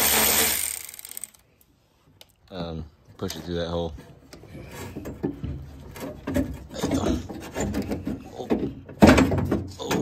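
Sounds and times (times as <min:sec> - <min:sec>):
metal scraping and knocking: 0:03.2 - 0:10.0.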